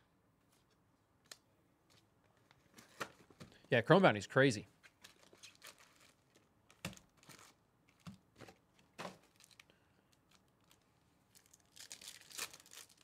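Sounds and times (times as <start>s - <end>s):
foil packs crinkling: 5.0s - 13.0s.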